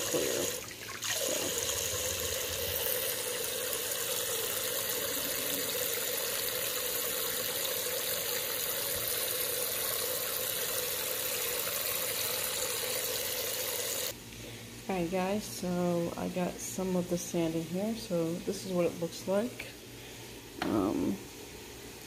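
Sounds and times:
water splashing: 0:00.0 - 0:06.6
tap water running into bucket: 0:00.0 - 0:14.2.

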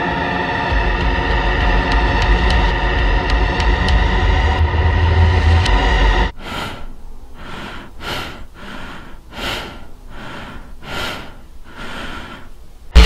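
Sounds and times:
heavy rapid breathing: 0:06.3 - 0:13.0.

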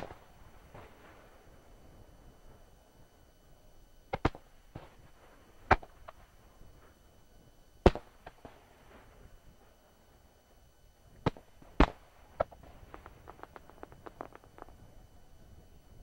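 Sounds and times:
fireworks booming: 0:11.1 - 0:15.0
fireworks cracks: 0:11.2 - 0:14.8.

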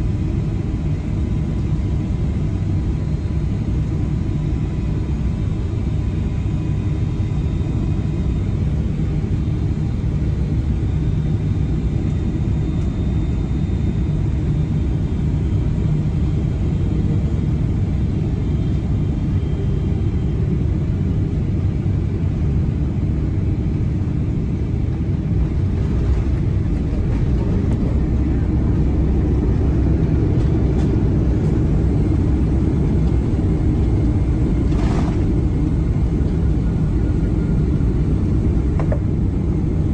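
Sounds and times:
aircraft cabin low rumble: 0:00.0 - 0:39.9
faint engine whine: 0:00.0 - 0:39.9.

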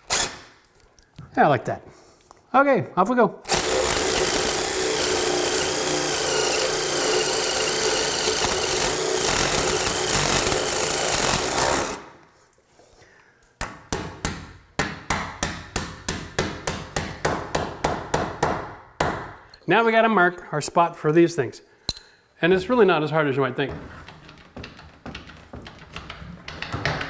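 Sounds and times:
power drill boring into wood: 0:00.1 - 0:00.4, 0:03.5 - 0:12.1.

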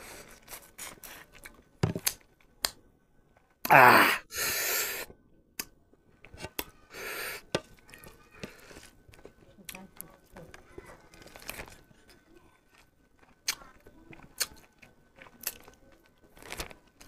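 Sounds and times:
hissing breath: 0:03.9 - 0:05.1, 0:06.9 - 0:07.5
small eating clicks: 0:07.7 - 0:17.0.

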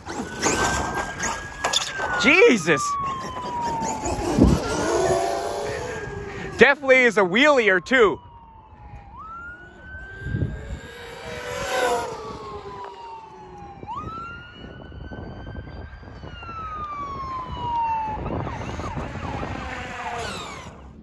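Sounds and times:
rc truck motor whining: 0:00.0 - 0:06.6, 0:09.1 - 0:14.4, 0:18.3 - 0:21.0.

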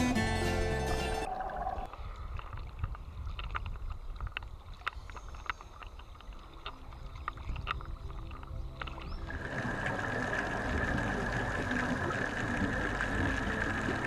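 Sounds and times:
music: 0:00.0 - 0:01.3, 0:10.3 - 0:14.0
sea water sloshing and lapping: 0:01.4 - 0:14.0.

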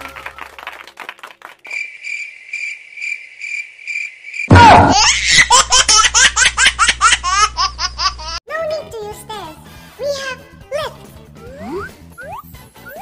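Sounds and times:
cricket chirping: 0:01.7 - 0:04.5
person laughing loudly: 0:04.5 - 0:08.4.

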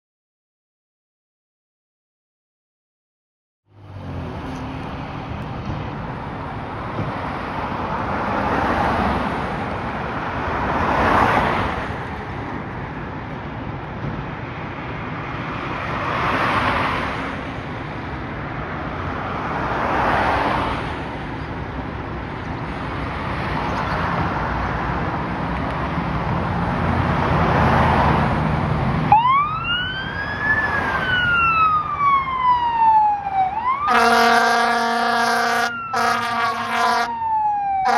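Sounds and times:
road traffic passing: 0:03.6 - 0:37.9
fire truck siren wailing: 0:29.0 - 0:37.9.

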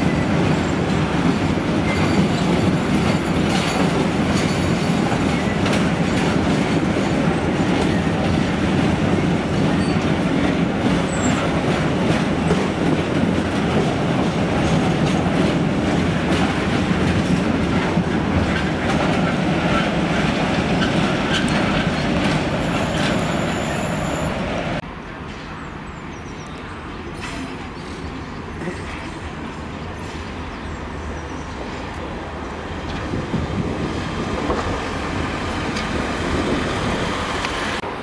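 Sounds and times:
train wheels clattering: 0:00.0 - 0:24.2
high wheel squeal: 0:01.8 - 0:03.4.

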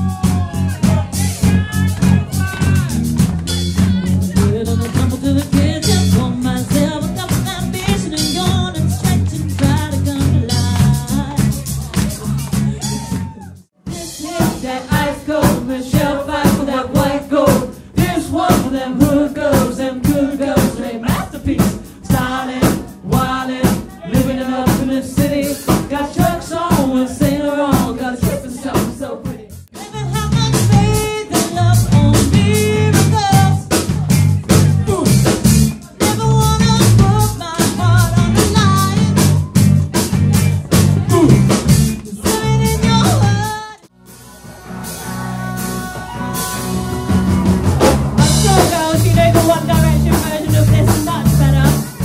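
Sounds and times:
live pop rock band playing: 0:00.0 - 0:52.0
woman singing lead vocals: 0:04.3 - 0:11.7, 0:13.9 - 0:33.9, 0:36.0 - 0:39.4, 0:42.1 - 0:43.9, 0:45.0 - 0:47.5, 0:48.2 - 0:52.0.

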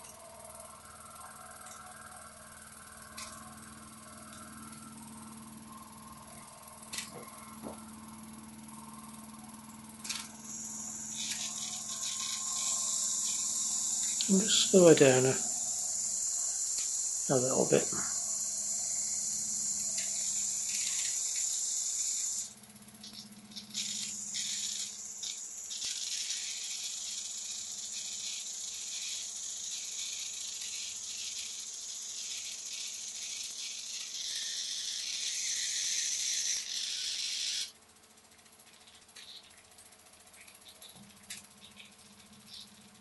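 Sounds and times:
steam engine hissing: 0:10.0 - 0:22.5, 0:23.1 - 0:37.1.

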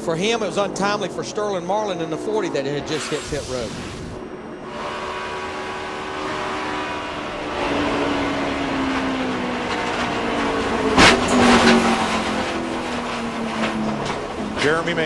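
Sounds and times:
race car engine: 0:00.0 - 0:15.0
loud car crash into wall: 0:10.9 - 0:12.0
hits and scrapes: 0:11.0 - 0:15.0.

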